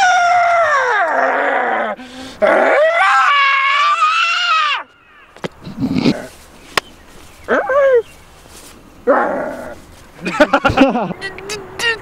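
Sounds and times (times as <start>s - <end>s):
man screaming: 2.4s - 4.8s.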